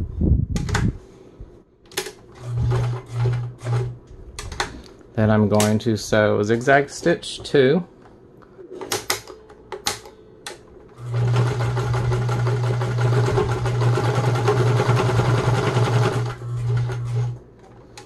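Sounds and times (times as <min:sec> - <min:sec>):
sewing machine humming: 0:02.3 - 0:04.0, 0:11.0 - 0:17.4.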